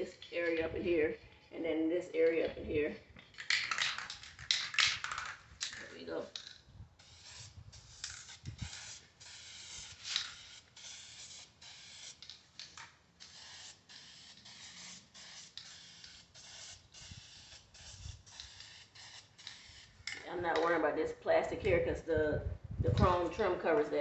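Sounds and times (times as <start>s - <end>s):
aerosol can spraying bursts: 7.0s - 20.2s.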